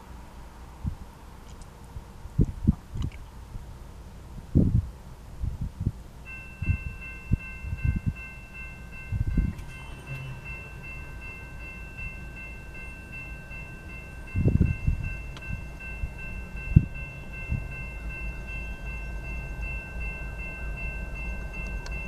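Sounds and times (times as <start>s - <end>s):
low rumbling gusts: 0.0s - 22.0s
crossing warning bells ringing: 6.2s - 22.0s.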